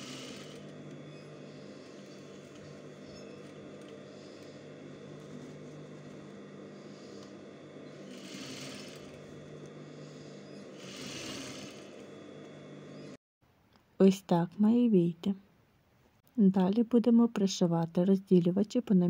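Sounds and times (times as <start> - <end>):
sewing machine running: 0.0 - 12.2.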